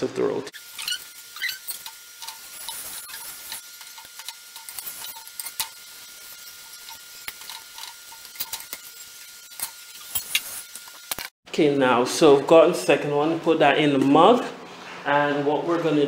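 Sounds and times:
oil sizzling on griddle: 0.6s - 11.3s.

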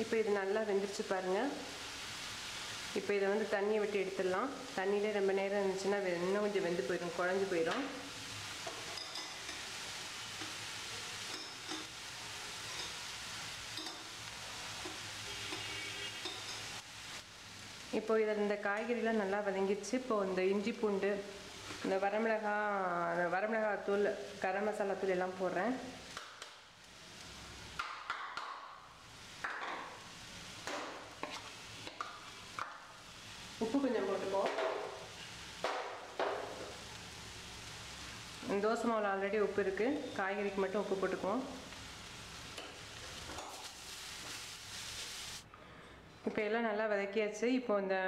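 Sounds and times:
water boiling in a pot: 0.0s - 18.6s, 23.8s - 45.5s
vegetables sizzling in oil: 0.0s - 45.5s
metal spoon clinking: 8.8s - 9.6s, 11.3s - 11.9s, 12.7s - 13.0s, 13.8s - 14.1s, 14.8s - 16.7s.

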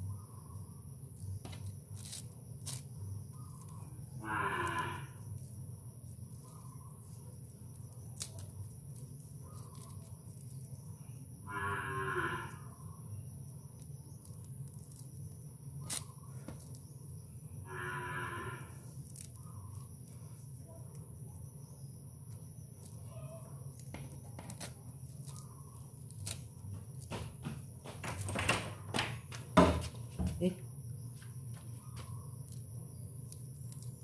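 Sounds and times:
steady low hum: 0.0s - 34.0s
animal calling: 4.2s - 5.2s.

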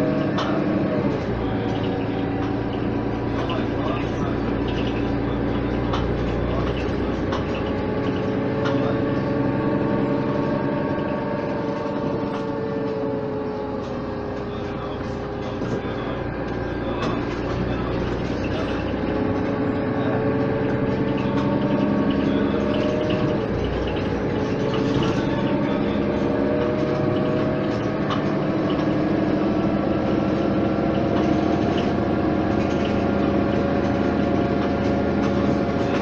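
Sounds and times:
bus diesel engine pulling away: 0.0s - 36.0s.

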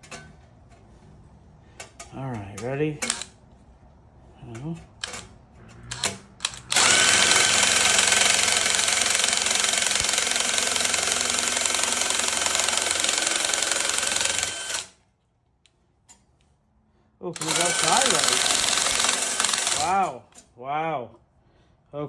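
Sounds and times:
drill nibbler cutting sheet metal: 6.7s - 14.9s, 17.4s - 20.1s.

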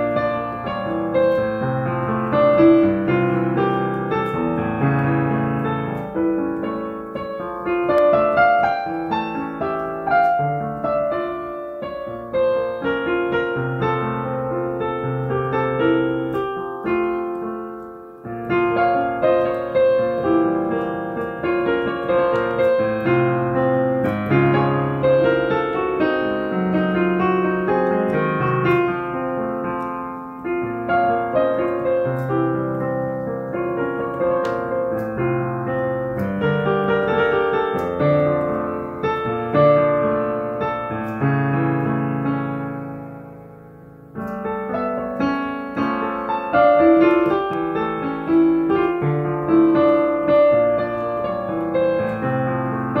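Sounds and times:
slow minor-key piano piece: 0.0s - 53.0s.

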